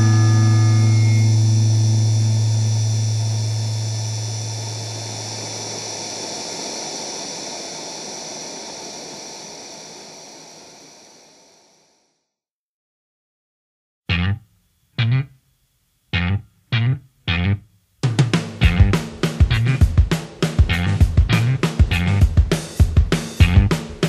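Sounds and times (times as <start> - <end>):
held low bass note: 0.0 - 6.0, 14.1 - 14.4, 16.2 - 17.6
amplifier noise and hiss: 0.0 - 12.0, 14.1 - 24.0.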